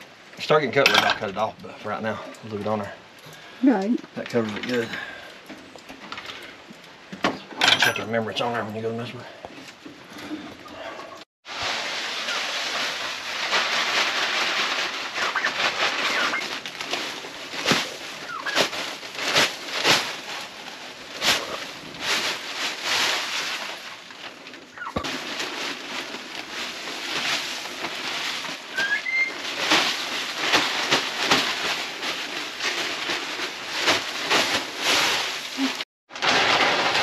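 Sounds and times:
plastic bag crinkling: 11.5 - 37.0
wood shavings falling: 11.5 - 37.0.

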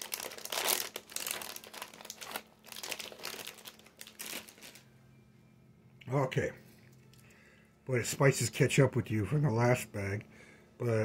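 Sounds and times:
plastic snack bag crinkling: 0.0 - 4.9.

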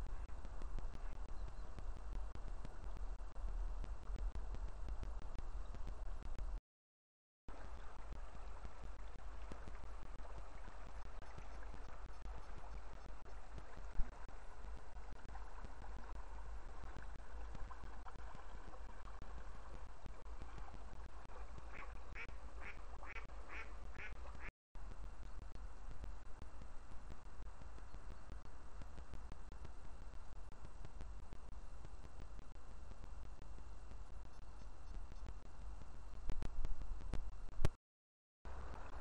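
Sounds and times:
flowing river water: 7.5 - 24.5
ducks quacking: 21.7 - 24.5.

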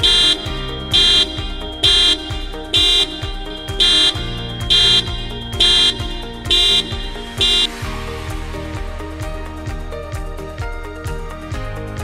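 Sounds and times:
car alarm beeping: 0.0 - 7.8
music with a bass beat: 0.0 - 12.0.

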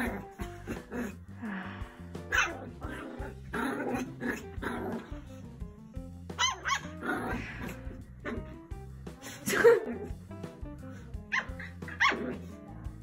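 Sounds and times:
puppy barking and growling: 0.0 - 1.6, 2.2 - 5.5, 6.2 - 10.6, 11.3 - 13.0
background music: 0.0 - 13.0.

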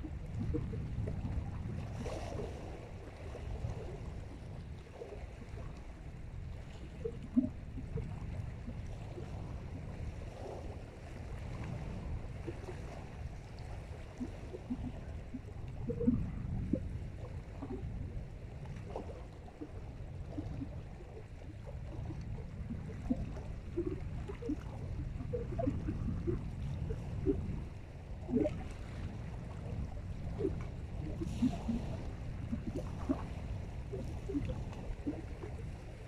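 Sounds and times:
steady low rumble: 0.0 - 1.9, 10.9 - 36.0
small waves lapping: 0.0 - 36.0.

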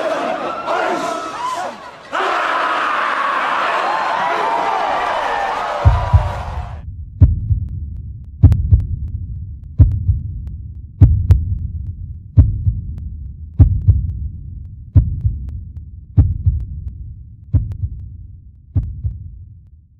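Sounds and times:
heartbeat thumps: 5.8 - 19.5.

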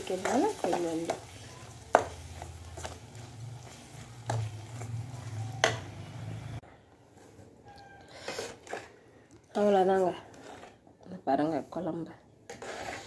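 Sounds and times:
steel ladle scraping a pot: 12.5 - 13.0.

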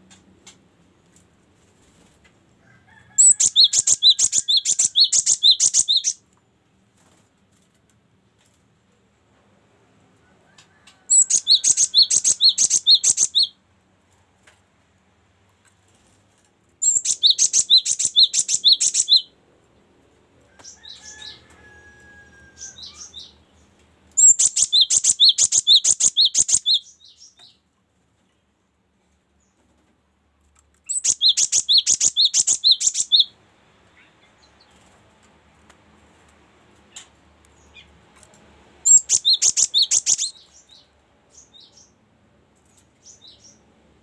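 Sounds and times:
soft bird calls: 3.2 - 6.2, 10.5 - 13.5, 16.8 - 19.3, 22.6 - 27.6, 30.8 - 33.3, 38.8 - 42.0.

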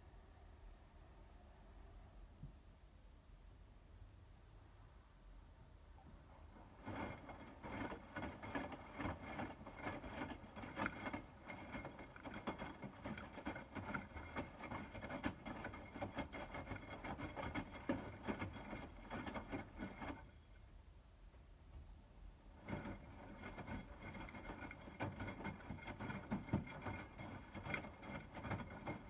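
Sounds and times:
wet laundry sloshing in drum: 6.7 - 20.3, 22.6 - 29.0.

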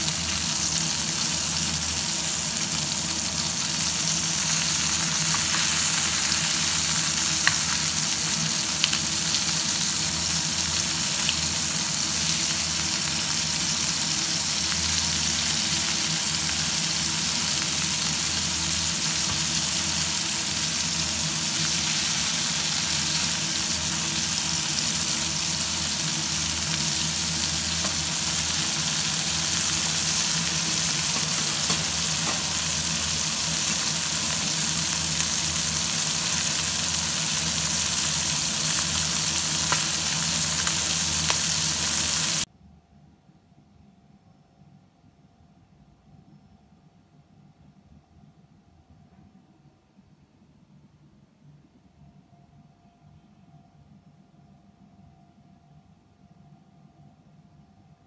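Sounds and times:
fish sizzling in hot oil: 0.0 - 42.5.

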